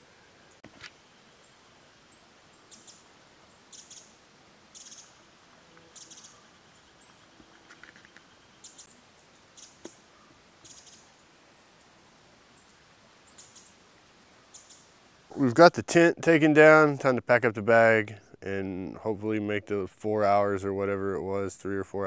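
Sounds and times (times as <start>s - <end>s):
small bird buzzy calls: 0.0s - 15.3s.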